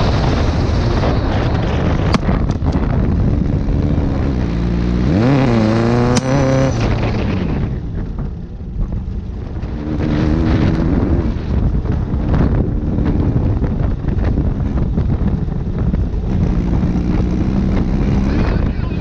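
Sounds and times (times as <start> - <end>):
buggy engine revving: 0.0 - 19.0
wind rumbling on microphone: 0.0 - 19.0.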